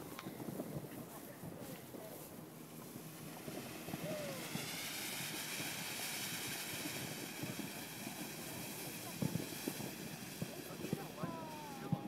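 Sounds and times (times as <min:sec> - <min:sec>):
fountain firework hissing: 0:00.0 - 0:12.0.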